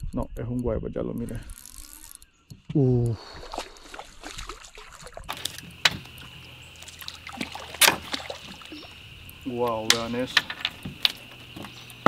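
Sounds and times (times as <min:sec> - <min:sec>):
water splashing: 0:03.1 - 0:12.0
fish sharp splashes: 0:03.2 - 0:09.4.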